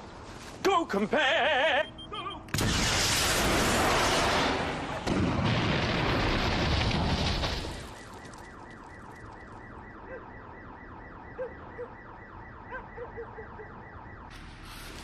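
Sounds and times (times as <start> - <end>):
car alarm wailing: 1.7 - 2.5, 7.8 - 14.3
loud explosion: 2.6 - 7.9.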